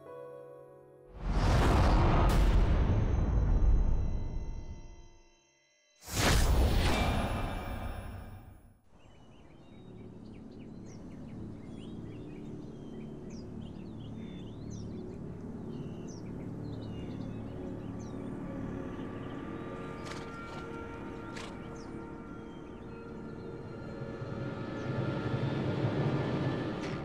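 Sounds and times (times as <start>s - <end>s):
whoosh hit: 1.2s - 4.6s, 6.1s - 8.7s.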